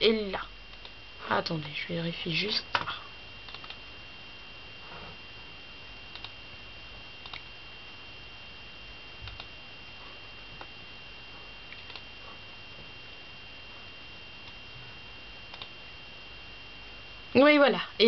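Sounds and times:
faint clicks: 0.7 - 1.0, 3.5 - 3.8, 6.1 - 6.4, 7.2 - 7.5, 9.3 - 9.5, 11.7 - 12.1, 15.5 - 15.7.

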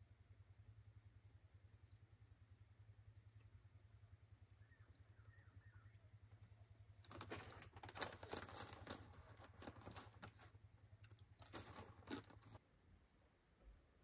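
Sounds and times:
plastic snack bag crinkling: 7.0 - 12.6.

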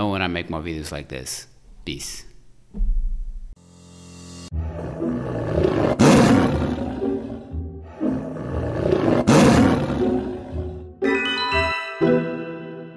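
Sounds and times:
background music: 3.4 - 12.9
tiger roar: 4.5 - 10.9.

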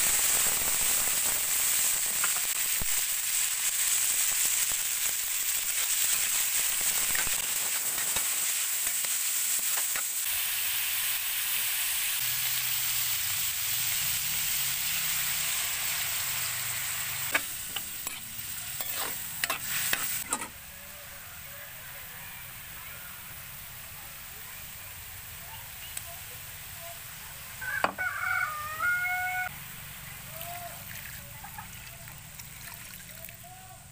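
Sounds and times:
squid sizzling in a wok: 0.0 - 32.5
metal spatula scraping a pan: 17.2 - 20.6.

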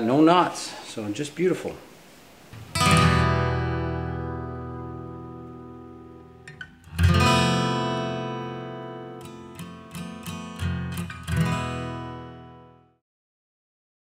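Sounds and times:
acoustic guitar chords strummed: 2.6 - 13.0.

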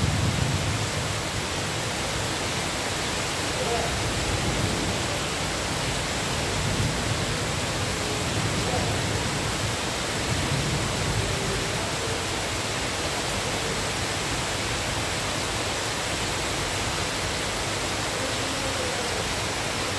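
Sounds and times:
rain falling on foliage: 0.0 - 19.9.

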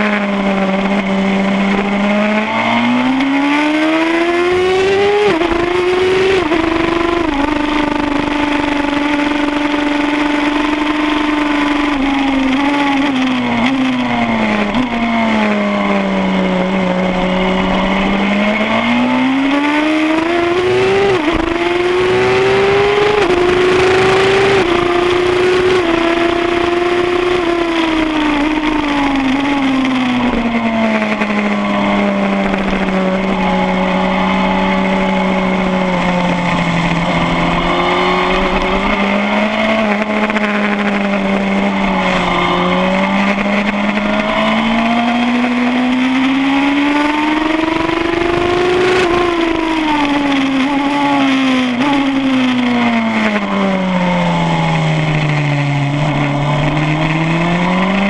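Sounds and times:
motorcycle engine revving: 0.0 - 58.0
wind rush: 31.5 - 44.9.

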